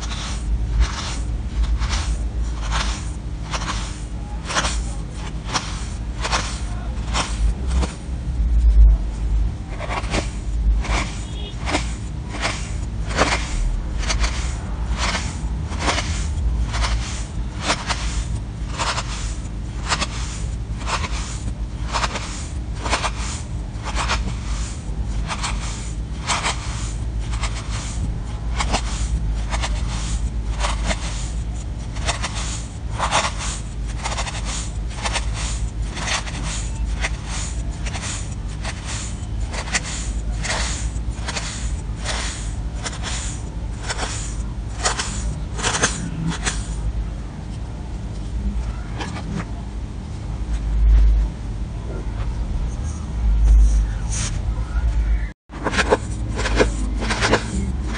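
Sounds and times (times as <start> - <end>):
knife scraping through sand: 0.0 - 7.9, 9.8 - 31.4, 32.0 - 46.8, 55.6 - 57.9
steady low rumble: 0.0 - 57.9.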